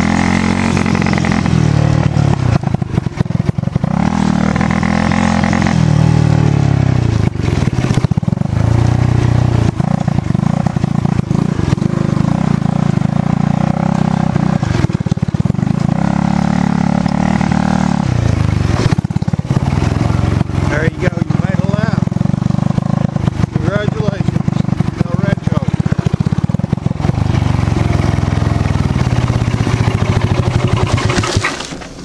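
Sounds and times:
dirt bike engine revving: 0.0 - 32.0
knocks and rattles from bumpy ground: 29.8 - 32.0.

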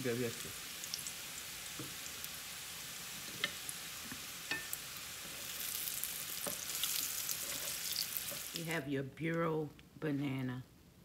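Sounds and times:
fries sizzling in hot oil: 0.0 - 8.8.

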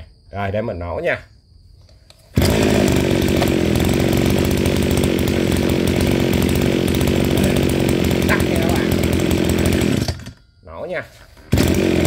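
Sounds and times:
recoil starter pull: 2.3 - 10.4, 11.4 - 12.0
brush cutter engine running: 2.4 - 10.4, 11.4 - 12.0.

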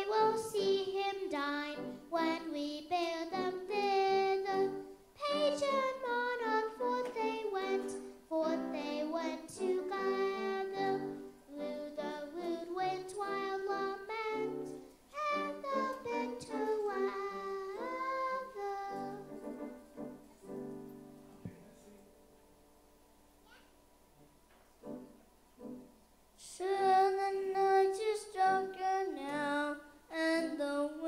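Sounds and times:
boy singing into microphone: 0.0 - 19.4, 26.4 - 31.0.

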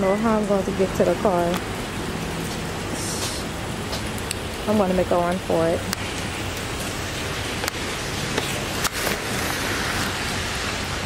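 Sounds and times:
rain hissing: 0.0 - 11.0.

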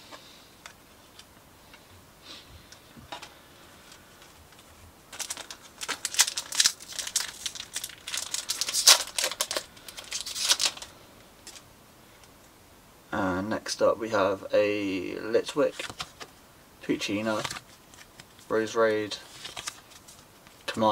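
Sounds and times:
foil wrapper tearing and crinkling: 5.1 - 11.6.

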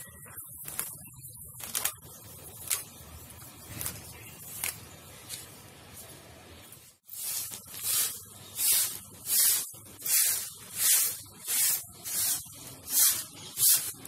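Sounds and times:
broom sweeping rough concrete: 5.2 - 14.0.

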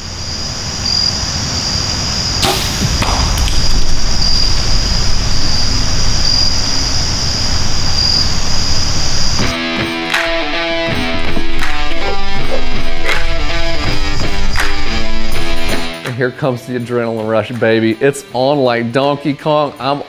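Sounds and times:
insects chirping: 0.0 - 15.9
bow string snap: 2.4 - 4.0.

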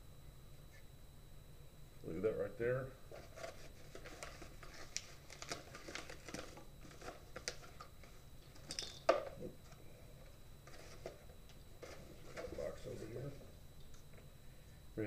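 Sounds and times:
padded envelope crinkling: 3.1 - 8.2.

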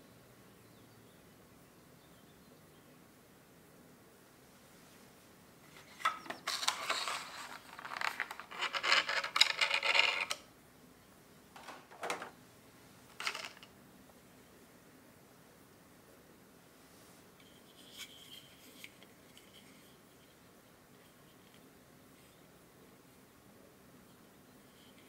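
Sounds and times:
plastic clicks and knocks: 11.6 - 12.3.

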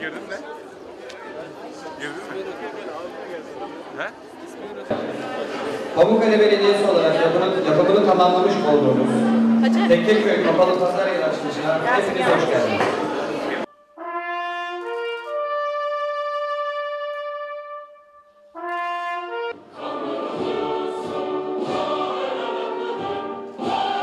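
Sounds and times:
brass band playing: 7.2 - 11.1, 13.6 - 24.0
choir singing: 8.3 - 11.0, 19.5 - 24.0.

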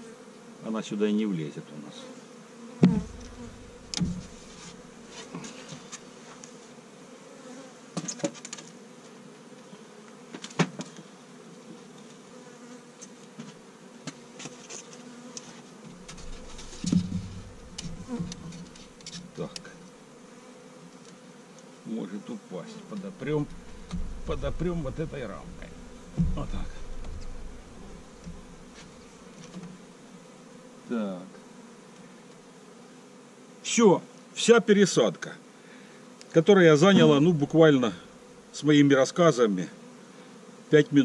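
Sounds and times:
bees buzzing: 0.0 - 41.0
wooden knocks of hive frames: 2.7 - 5.9, 7.5 - 9.2, 10.2 - 11.0, 13.0 - 19.7, 23.0 - 29.9, 36.8 - 37.6.

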